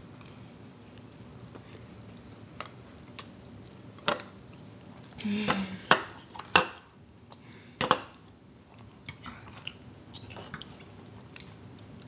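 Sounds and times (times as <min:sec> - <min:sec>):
person humming: 0:05.2 - 0:05.9.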